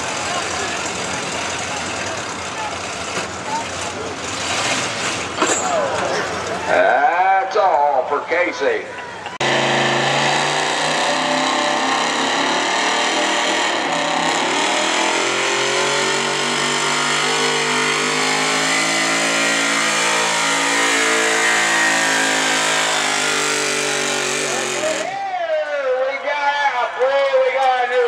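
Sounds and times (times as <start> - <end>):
pickup engine revving hard: 9.4 - 25.1.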